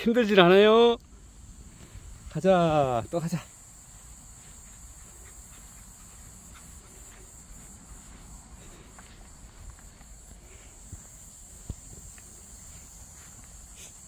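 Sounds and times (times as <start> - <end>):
insects chirring: 0.0 - 14.0
soft footsteps on mat: 3.8 - 14.0.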